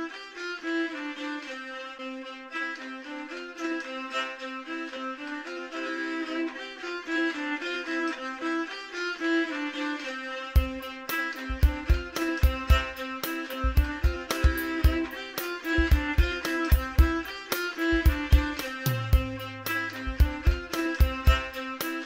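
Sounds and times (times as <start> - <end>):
fiddle music: 0.0 - 22.0
sharp knocks: 10.6 - 22.0.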